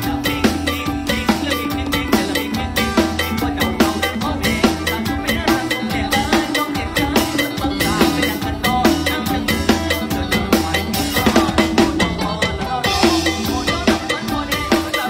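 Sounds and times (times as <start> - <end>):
drum kit fast beat: 0.0 - 15.0
pitched band instruments: 0.0 - 15.0.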